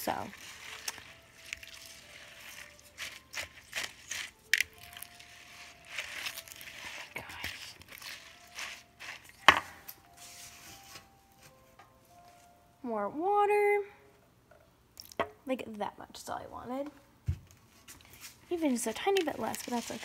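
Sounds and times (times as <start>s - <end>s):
spatula stirring beaded slime: 0.0s - 11.0s, 18.0s - 20.0s.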